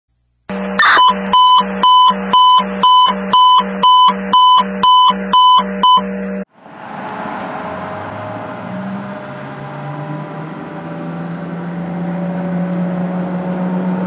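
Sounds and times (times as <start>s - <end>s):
electronic alarm beeping: 0.5s - 6.1s.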